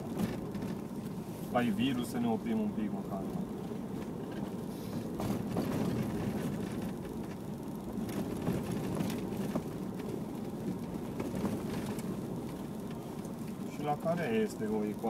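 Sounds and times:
small knocks and rattles: 0.0s - 1.2s, 3.3s - 13.7s
engine and tyres on gravel: 0.0s - 15.0s.

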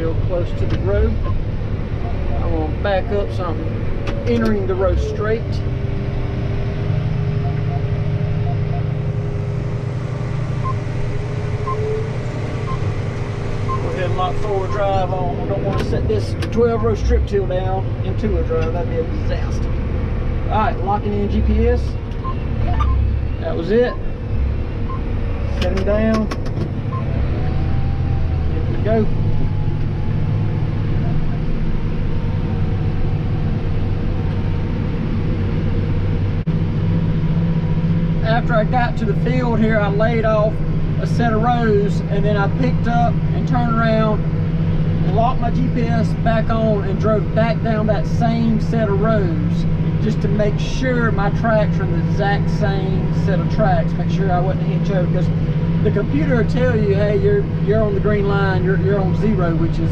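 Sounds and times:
tractor engine running: 0.0s - 59.9s
steady hum: 7.0s - 17.2s
short high beeps: 7.4s - 9.1s, 11.6s - 12.9s, 22.2s - 23.1s.

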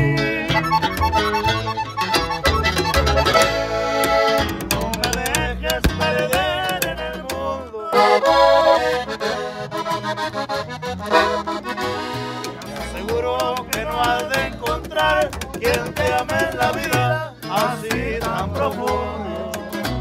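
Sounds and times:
accordion melody: 0.0s - 20.0s
plucked upright bass: 0.0s - 20.0s
strummed strings: 0.2s - 20.0s.

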